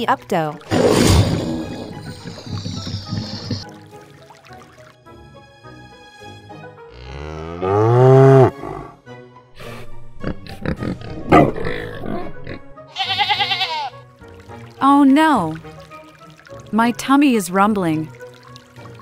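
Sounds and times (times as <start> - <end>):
light background music: 0.0 - 19.0
cow mooing: 6.9 - 9.0
animal grunts: 7.0 - 9.0, 9.7 - 12.7
sheep bleating: 12.9 - 14.0.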